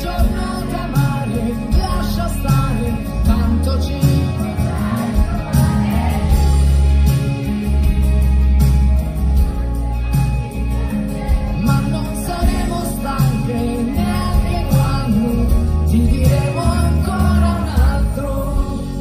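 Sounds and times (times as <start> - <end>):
live band playing instrumental: 0.0 - 19.0
drum beat: 3.4 - 9.0.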